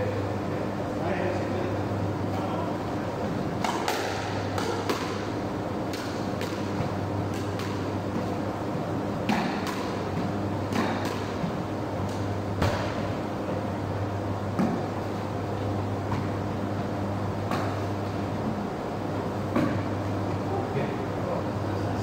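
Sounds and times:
steady low hum: 0.0s - 22.0s
squash balls struck with echo: 3.5s - 13.4s, 14.5s - 15.0s, 17.4s - 18.1s, 19.5s - 20.0s.

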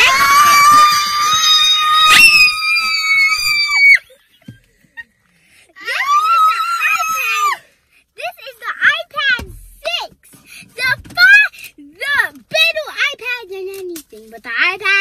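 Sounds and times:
woman and girl screaming: 0.0s - 4.0s, 5.8s - 7.6s.

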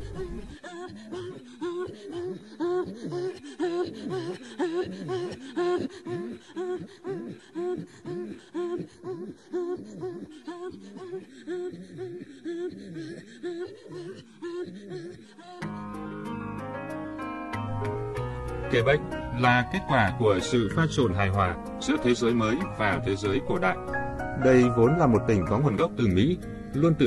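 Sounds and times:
women throat singing: 0.0s - 16.0s.

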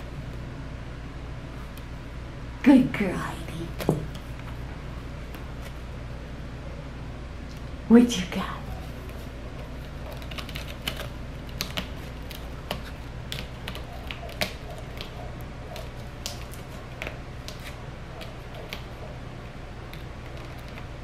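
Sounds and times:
cat claws scratching rope post: 8.9s - 19.1s, 19.9s - 21.0s.

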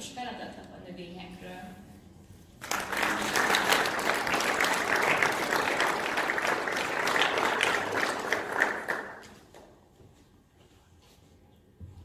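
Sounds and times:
audience applauding: 2.6s - 9.4s.

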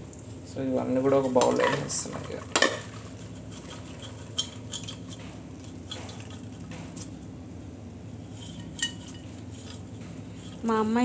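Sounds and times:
steady low hum: 0.0s - 11.0s
popcorn rustling into bowl: 1.0s - 7.2s.

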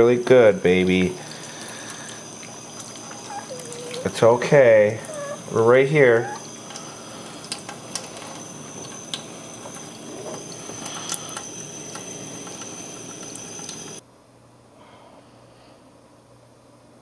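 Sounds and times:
water splashing: 0.8s - 5.6s.

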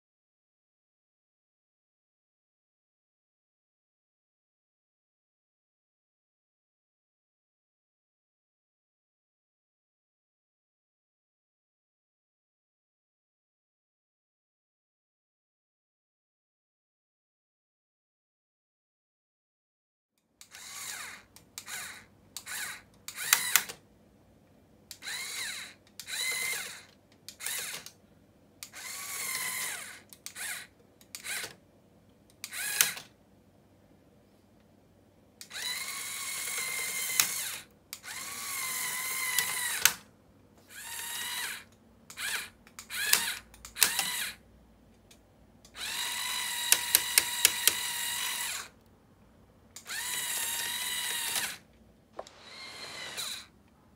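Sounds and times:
small electric motor whining: 20.5s - 23.7s, 25.0s - 27.8s, 28.7s - 31.4s, 32.5s - 33.0s, 35.5s - 40.0s, 40.7s - 44.4s, 45.8s - 48.8s, 49.8s - 51.6s, 52.2s - 53.5s
sharp clicks: 46.6s - 48.6s.

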